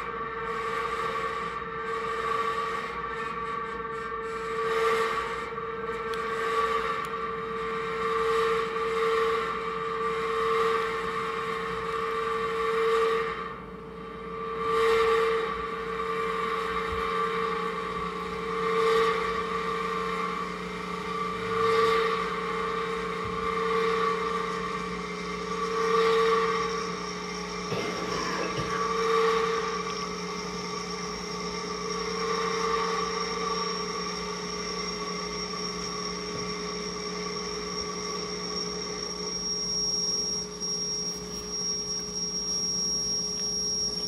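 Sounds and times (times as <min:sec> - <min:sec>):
hiss: 0:25.6 - 0:44.0.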